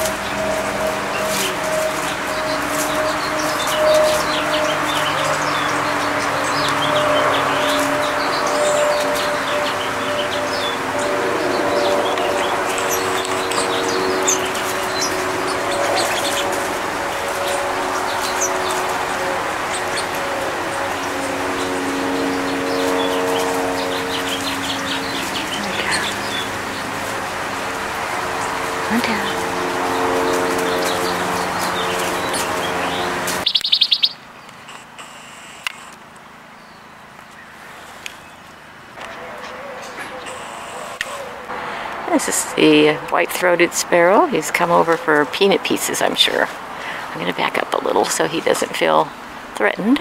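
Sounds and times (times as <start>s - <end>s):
steady low tones: 0.0s - 33.5s
small songbirds chirping: 0.0s - 34.7s, 36.5s - 41.1s
high bird trill: 0.0s - 35.9s, 39.1s - 41.4s
background hum: 0.0s - 50.0s
droning background noise: 0.0s - 50.0s.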